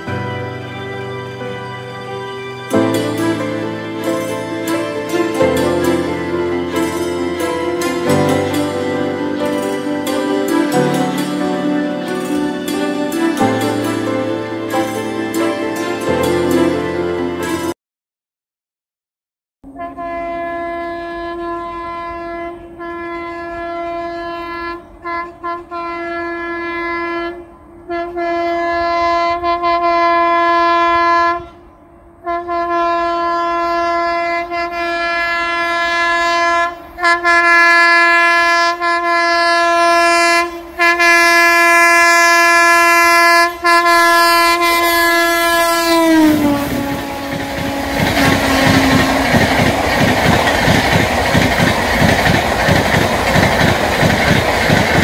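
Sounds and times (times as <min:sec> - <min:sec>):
train coaches rumbling past: 0:00.0 - 0:17.7, 0:19.7 - 0:55.0
train horn blasts: 0:19.6 - 0:51.4.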